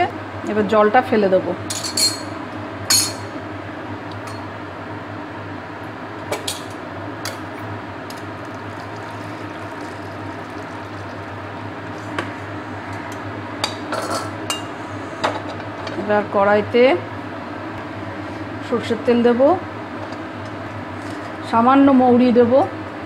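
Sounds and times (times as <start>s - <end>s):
steady low hum: 0.0s - 23.0s
water being poured off: 8.4s - 11.3s.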